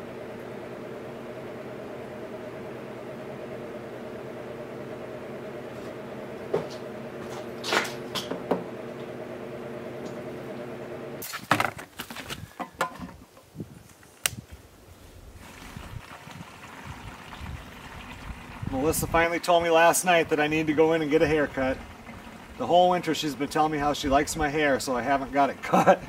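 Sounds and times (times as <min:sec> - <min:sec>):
machine hum: 0:00.0 - 0:11.3, 0:15.2 - 0:26.0
plastic gas cans knocking: 0:12.6 - 0:13.3.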